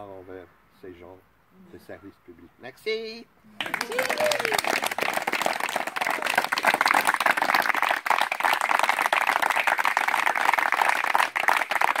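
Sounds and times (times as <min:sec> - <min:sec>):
audience applause: 0:03.6 - 0:12.0.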